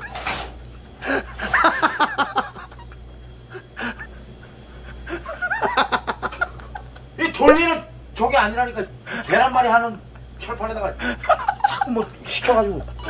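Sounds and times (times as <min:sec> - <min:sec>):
person laughing: 0:01.0 - 0:07.0, 0:11.0 - 0:12.0.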